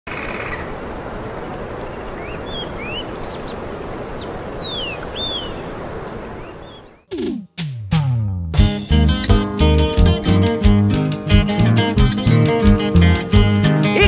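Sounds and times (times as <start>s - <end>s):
birds chirping: 1.8s - 7.4s.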